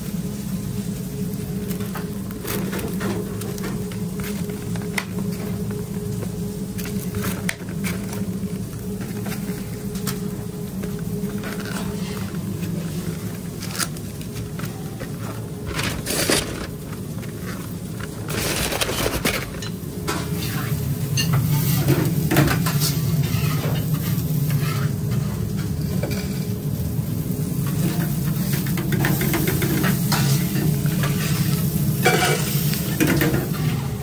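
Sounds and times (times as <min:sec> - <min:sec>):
steady low hum: 0:00.0 - 0:34.0
utensils clinking on steel counter: 0:18.3 - 0:26.5, 0:27.6 - 0:34.0.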